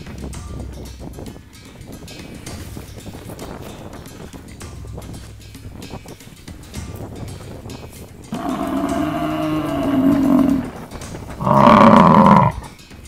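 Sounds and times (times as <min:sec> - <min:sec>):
buffalo bellowing: 0:08.3 - 0:12.8.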